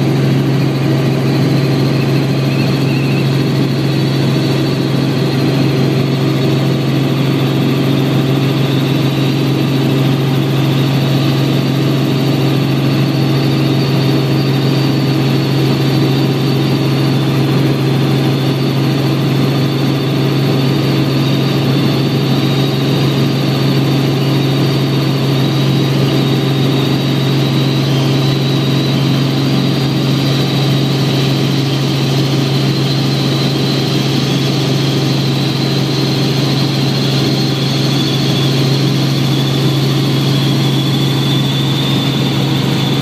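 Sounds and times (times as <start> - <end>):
helicopter rotor and engine drone: 0.0 - 43.0
thin high whine: 1.0 - 4.2.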